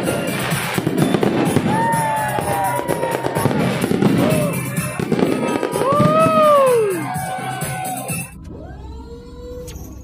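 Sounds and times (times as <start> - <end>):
fireworks bursting and crackling: 0.0 - 8.3.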